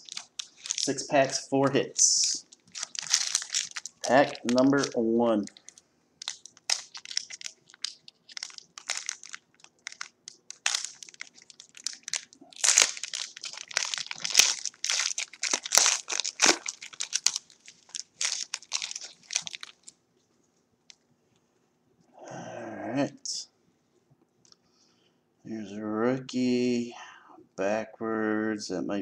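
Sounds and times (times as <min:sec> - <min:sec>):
foil wrapper crinkling: 0:00.0 - 0:01.4, 0:02.0 - 0:20.0.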